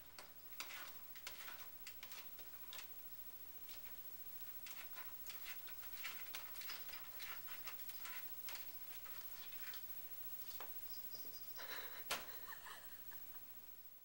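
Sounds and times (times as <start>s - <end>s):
cat claws scraping a door: 0.5s - 2.9s, 3.7s - 9.9s.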